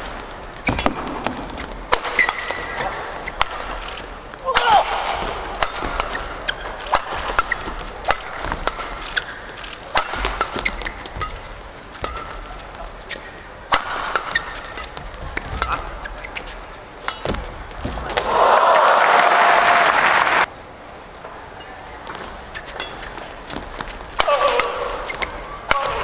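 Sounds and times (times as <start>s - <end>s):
racket striking shuttlecock: 0.0s - 18.3s, 22.6s - 26.0s
shoe squeaks on court: 7.4s - 9.6s, 10.2s - 11.4s, 12.0s - 17.3s
crowd applause: 18.2s - 20.5s.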